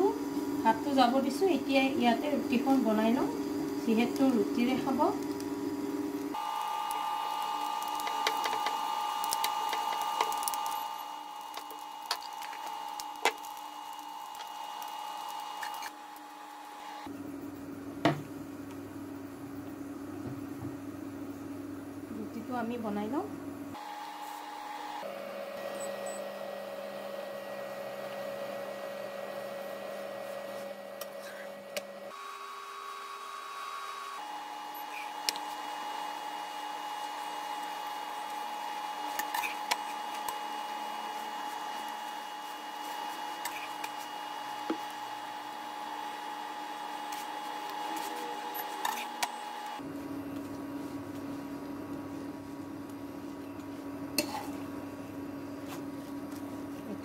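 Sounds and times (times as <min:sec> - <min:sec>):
induction cooktop humming: 0:00.0 - 0:57.0.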